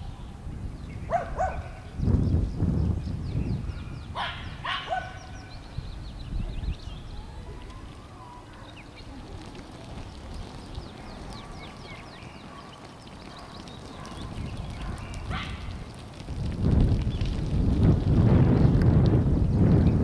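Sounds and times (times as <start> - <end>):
birds chirping: 0.0 - 20.0
dog barking: 1.1 - 1.8, 4.2 - 5.4, 12.5 - 15.7.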